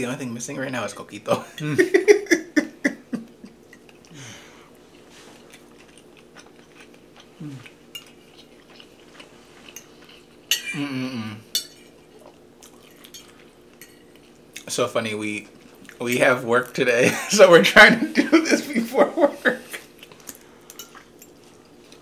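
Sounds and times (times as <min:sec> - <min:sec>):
soft chewing: 0:03.3 - 0:10.7, 0:11.4 - 0:16.8, 0:19.6 - 0:22.0
person humming mm: 0:07.4 - 0:07.7, 0:10.7 - 0:11.5.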